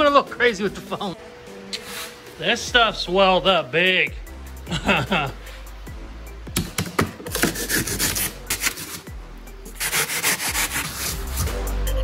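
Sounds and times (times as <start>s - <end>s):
hand saw cutting foam: 7.3s - 9.1s, 9.8s - 11.5s.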